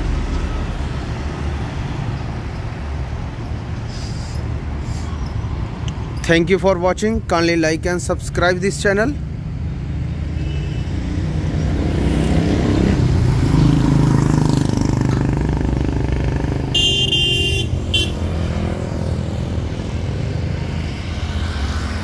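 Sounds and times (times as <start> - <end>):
vehicle horn: 16.7 - 18.2.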